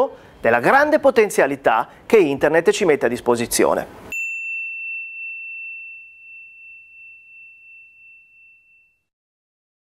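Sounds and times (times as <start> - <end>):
high bell-like chime ringing: 4.1 - 9.1.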